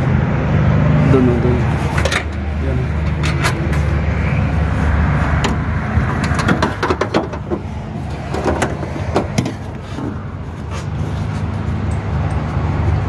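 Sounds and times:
clicks and knocks of parts: 0:01.9 - 0:03.8, 0:05.4 - 0:10.1.

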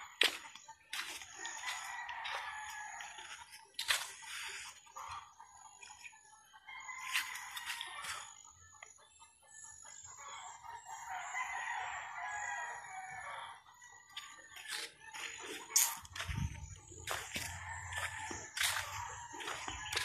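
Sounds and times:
rooster crowing: 0:01.4 - 0:03.4, 0:11.1 - 0:13.6, 0:14.6 - 0:20.0.

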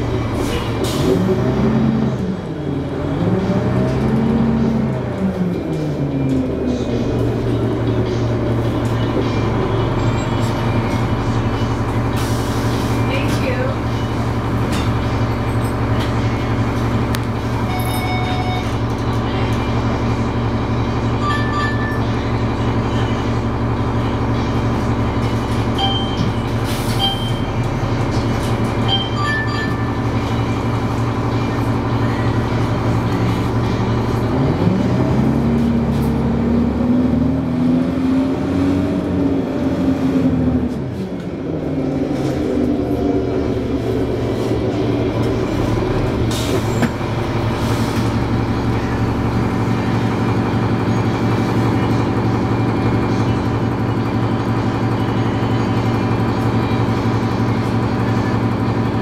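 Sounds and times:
bus diesel engine revving: 0:00.0 - 0:17.6, 0:30.0 - 0:59.0.

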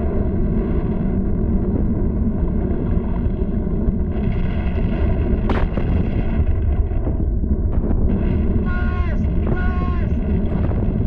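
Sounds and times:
cartoon volcano low rumble: 0:00.0 - 0:11.0
sharp crack: 0:05.4 - 0:06.6.

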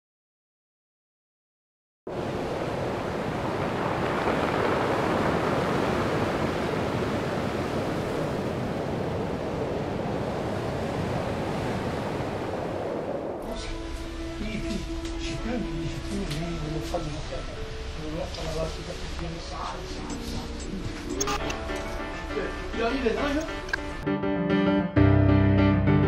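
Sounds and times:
sea waves washing onto shore: 0:02.1 - 0:23.7.

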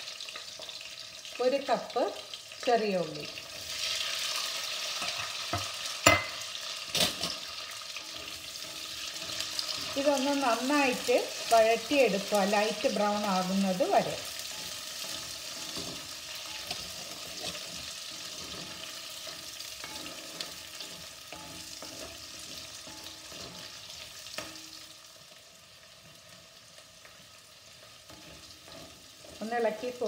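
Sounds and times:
onions sizzling in hot oil: 0:00.0 - 0:30.0
wooden spatula scraping pan: 0:06.9 - 0:24.6.

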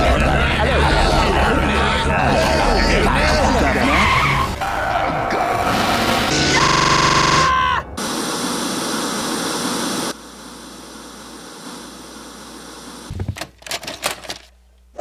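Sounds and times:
cartoon character screaming: 0:06.4 - 0:08.0
television static hiss: 0:08.0 - 0:13.1.

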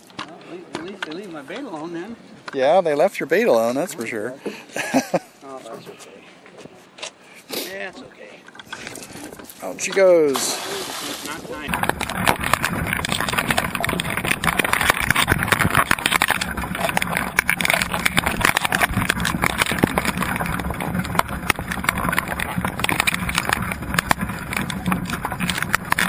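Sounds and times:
crabs scraping over wire pot: 0:08.6 - 0:26.0
underwater crackling and clicking: 0:11.4 - 0:26.0.

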